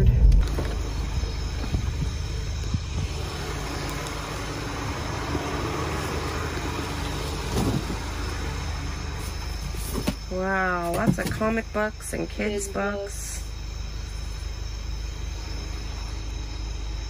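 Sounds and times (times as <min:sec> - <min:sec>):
car engine running: 0:00.0 - 0:11.8.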